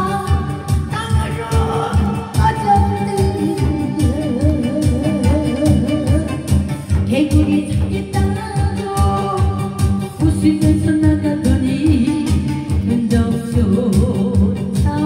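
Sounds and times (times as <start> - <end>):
amplified backing music with beat: 0.0 - 15.0
person singing: 0.0 - 15.0.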